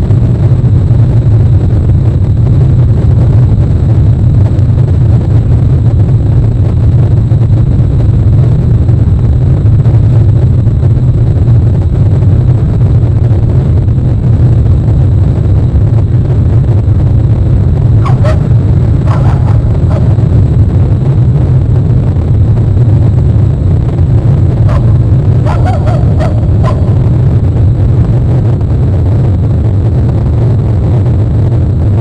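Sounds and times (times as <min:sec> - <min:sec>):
loud low rumble: 0:00.0 - 0:32.0
short calls: 0:25.4 - 0:26.9.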